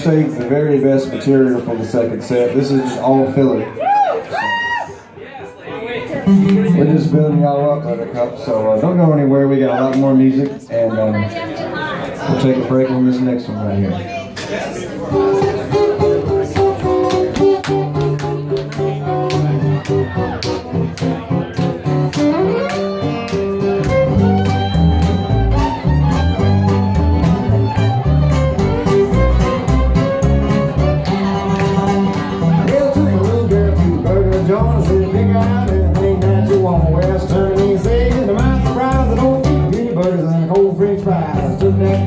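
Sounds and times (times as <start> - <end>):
acoustic string band playing: 6.1 - 10.5, 15.0 - 42.0
upright bass notes: 6.2 - 8.1, 15.2 - 42.0.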